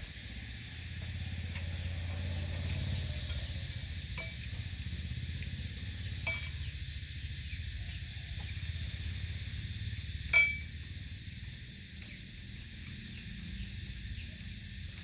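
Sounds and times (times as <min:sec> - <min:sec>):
steady low hum: 0:00.0 - 0:15.0
metal spoon clinking ceramic bowl: 0:06.2 - 0:06.6, 0:10.3 - 0:10.7.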